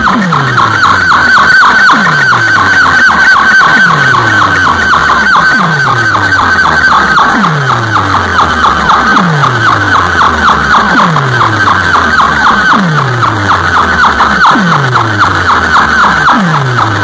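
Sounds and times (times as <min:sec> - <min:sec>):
electronic falling zaps: 0:00.0 - 0:17.0.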